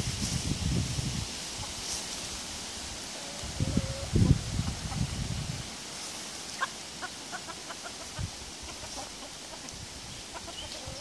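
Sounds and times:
chickens clucking: 3.2s - 5.6s, 6.3s - 11.0s.

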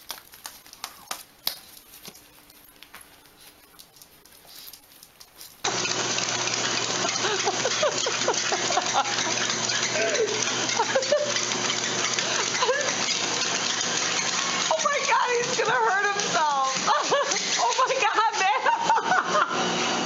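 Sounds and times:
treadmill motor and belt whooshing: 5.6s - 20.0s.

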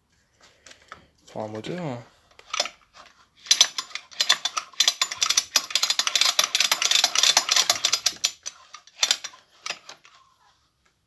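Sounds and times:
engine mechanical clicking and ratcheting: 3.5s - 10.0s.

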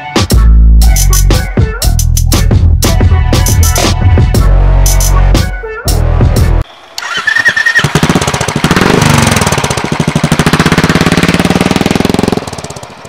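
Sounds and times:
motorcycle engine thumping: 7.8s - 13.0s.

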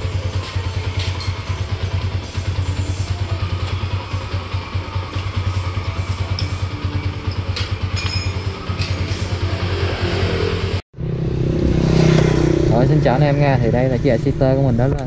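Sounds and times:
motorcycle engine idling: 0.0s - 9.9s
light metallic clinks: 6.2s - 9.1s.

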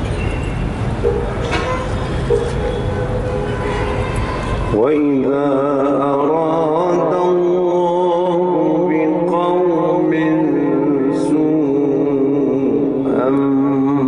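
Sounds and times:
man chanting melodically: 4.7s - 14.0s.

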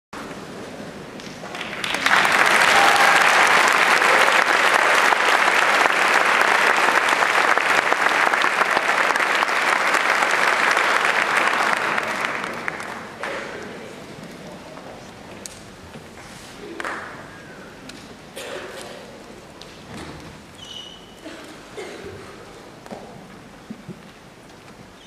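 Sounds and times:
audience applauding: 1.4s - 13.8s.

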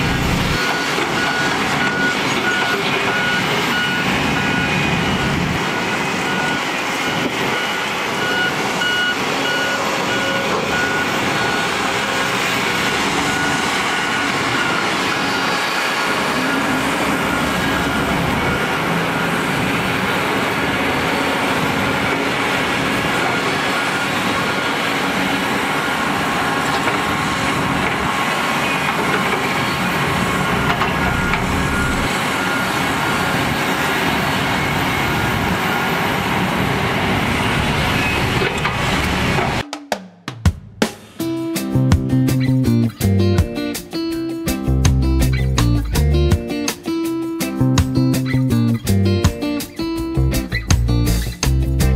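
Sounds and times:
excavators running: 0.0s - 39.6s, 42.0s - 51.9s
back-up alarm beeping: 0.2s - 20.2s, 21.8s - 24.9s, 28.0s - 33.5s, 34.4s - 36.5s.

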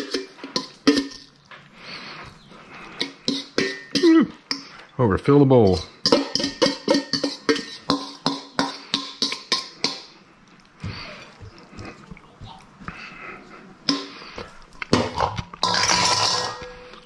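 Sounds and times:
fork clinking on metal bowl: 0.0s - 1.4s, 3.0s - 4.8s, 6.0s - 10.1s.

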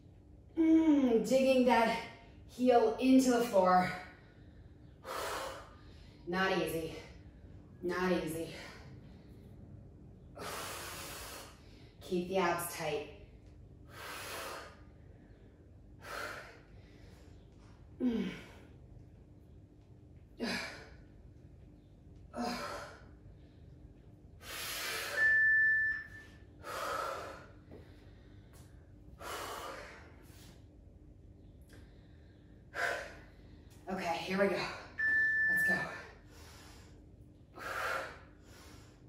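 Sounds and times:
woman grunting: 18.0s - 18.5s, 20.4s - 20.8s
high beep: 24.9s - 26.4s, 35.0s - 36.1s.

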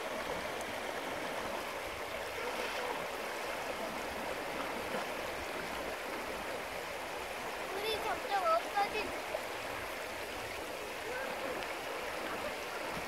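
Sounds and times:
stream running over stones: 0.0s - 13.0s.

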